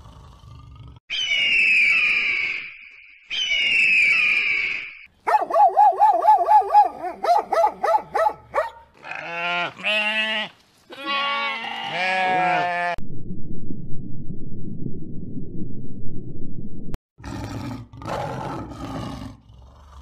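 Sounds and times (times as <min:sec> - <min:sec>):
dog yelping: 0:05.3 - 0:08.8
sheep bleating: 0:09.0 - 0:13.0.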